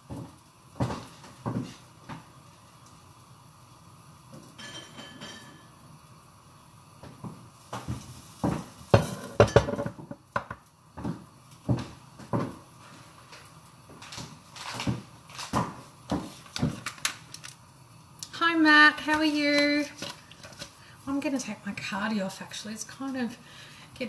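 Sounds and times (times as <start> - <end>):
bottles clinking on counter: 9.0 - 10.1.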